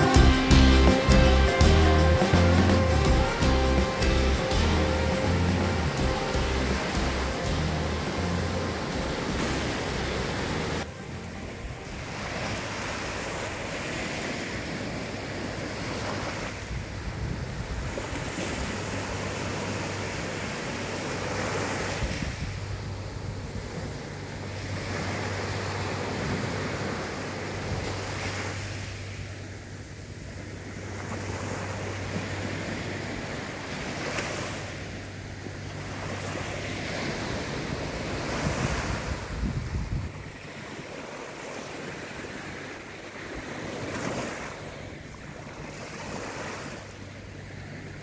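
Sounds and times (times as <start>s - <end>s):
waves washing up a beach: 2.2s - 48.0s
wind on the microphone: 15.6s - 19.0s, 21.8s - 24.0s, 37.2s - 40.5s.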